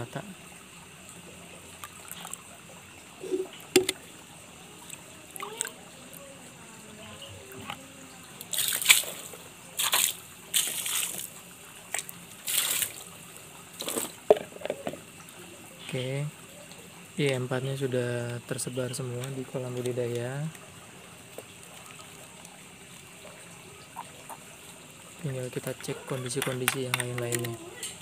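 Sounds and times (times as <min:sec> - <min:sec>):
liquid splashing onto wet mud: 0:08.4 - 0:11.3, 0:11.9 - 0:13.1.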